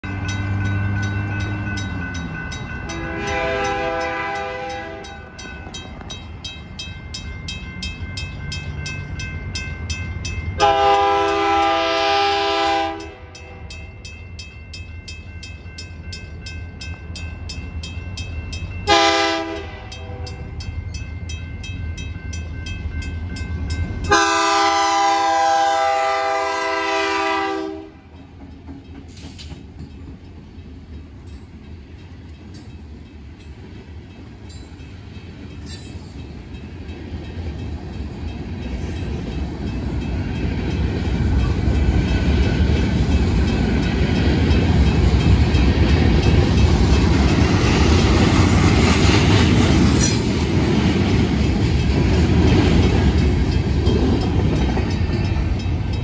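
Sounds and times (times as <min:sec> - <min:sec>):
low locomotive rumble: 0:00.0 - 0:56.0
railroad crossing bells ringing: 0:00.0 - 0:56.0
locomotive horn chime: 0:00.1 - 0:05.8, 0:10.5 - 0:14.1, 0:18.8 - 0:20.7, 0:23.8 - 0:28.1.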